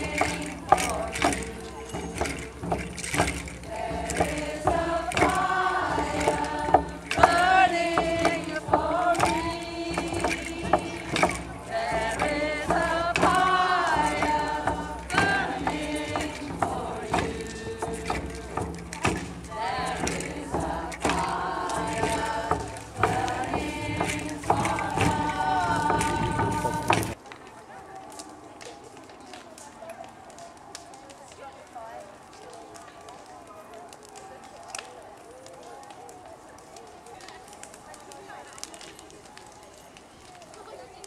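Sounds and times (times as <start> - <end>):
frame drum beats: 0.0 - 27.2
women singing a chant: 0.0 - 27.2.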